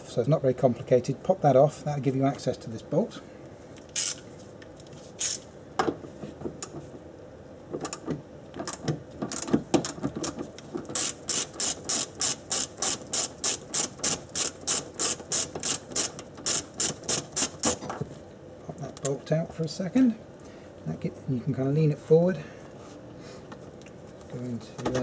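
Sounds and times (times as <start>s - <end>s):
hand ratchet clicking: 3.9s - 4.2s, 9.3s - 17.8s.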